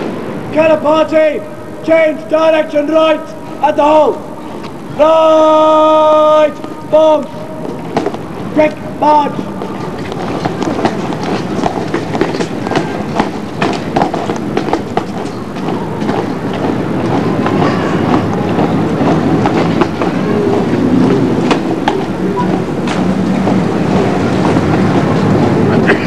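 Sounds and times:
boots marching on pavement: 6.6 - 26.0.

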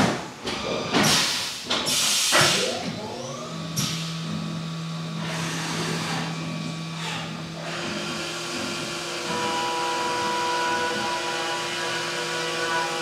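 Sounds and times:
pneumatic air hisses: 0.9 - 2.8
mill spindle whine and hum: 2.5 - 13.0.

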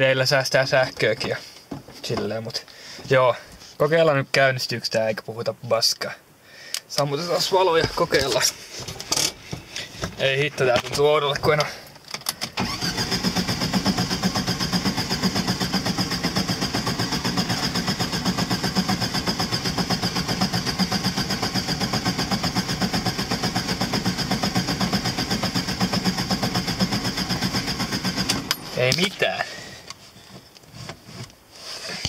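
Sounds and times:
starter motor cranking engine: 12.4 - 29.9.

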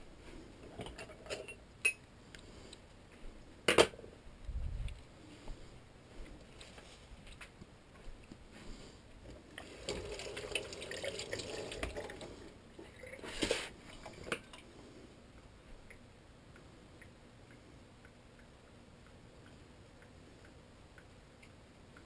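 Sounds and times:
kitchen tap running: 9.6 - 14.4.

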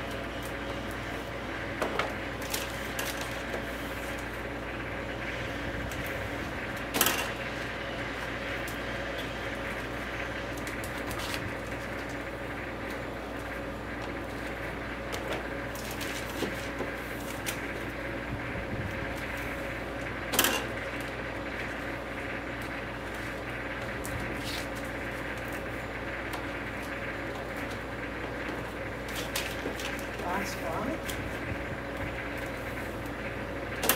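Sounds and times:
steady low hum: 0.0 - 33.9
plastic film rustling and crinkling: 9.6 - 18.1, 22.5 - 25.8, 26.4 - 31.4.

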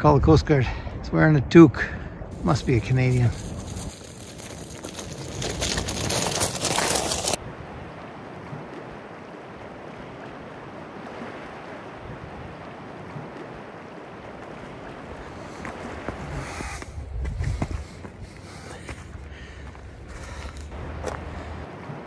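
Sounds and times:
bike tyres crunching over cobbles: 2.4 - 7.4.

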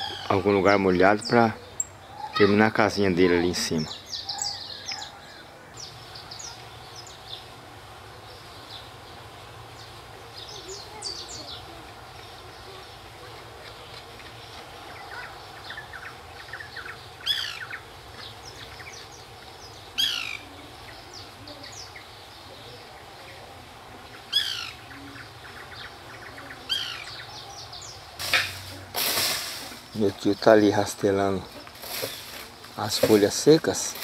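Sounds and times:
birds chirping: 0.0 - 34.0
scratchy rustling: 31.4 - 34.0.

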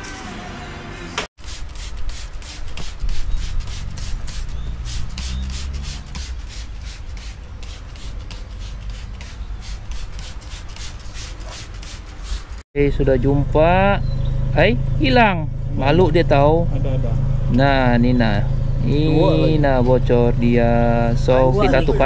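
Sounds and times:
spray bottle squirting: 1.4 - 12.6
steady low rumble: 12.8 - 22.0.

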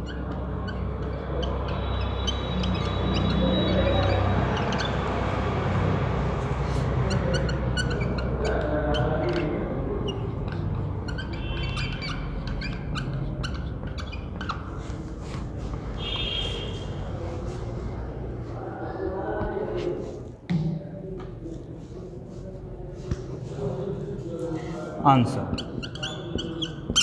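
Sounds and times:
marker squeaking on whiteboard: 0.0 - 17.8, 24.2 - 27.0.

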